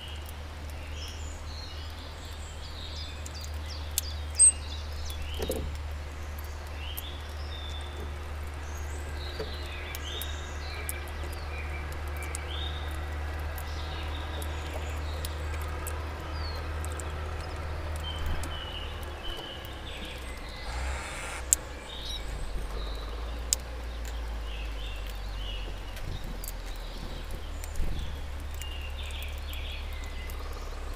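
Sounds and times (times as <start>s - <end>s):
small birds chirping: 0.0s - 30.9s
low outdoor rumble: 3.6s - 30.9s
brief rush of noise: 20.6s - 21.6s.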